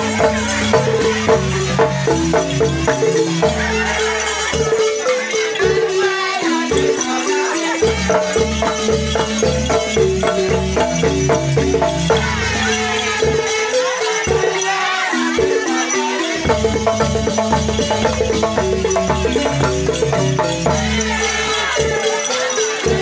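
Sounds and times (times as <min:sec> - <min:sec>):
rattle-like percussion: 0:00.0 - 0:23.0
voices singing: 0:00.0 - 0:23.0.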